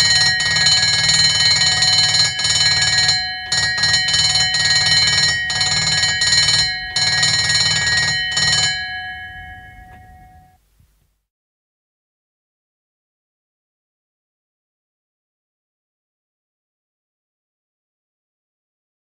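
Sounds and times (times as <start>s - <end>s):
ambulance warning bell ringing: 0.0s - 10.6s.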